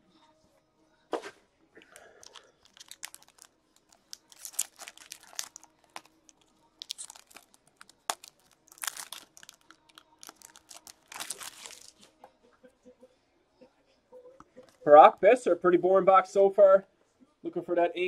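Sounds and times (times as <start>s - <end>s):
foil wrapper tearing and crinkling: 2.0s - 12.1s.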